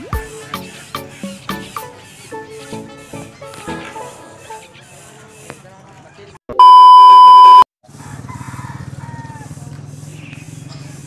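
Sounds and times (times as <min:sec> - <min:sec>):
test tone beep: 0:06.5 - 0:07.6.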